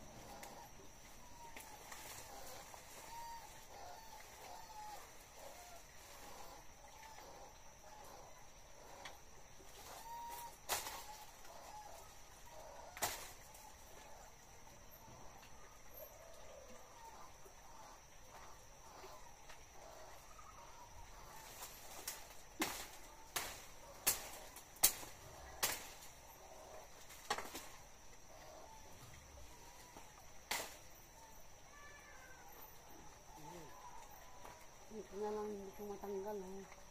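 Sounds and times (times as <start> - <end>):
blade hacking tree branches: 10.7 - 11.2, 13.0 - 13.6, 21.4 - 26.2, 27.0 - 27.8, 30.5 - 30.9.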